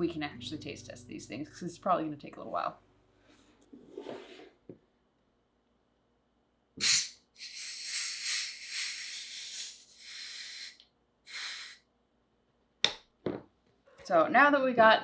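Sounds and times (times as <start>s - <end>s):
gas hissing from a bottle: 6.8s - 11.8s
sharp burst of gas: 6.8s - 11.8s.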